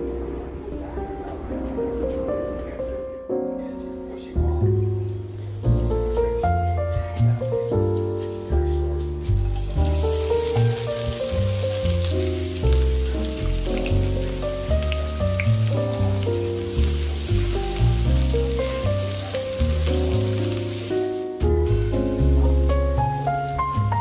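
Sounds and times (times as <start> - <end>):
background keyboard music: 0.0 - 24.0
onions sizzling in hot oil: 9.2 - 24.0.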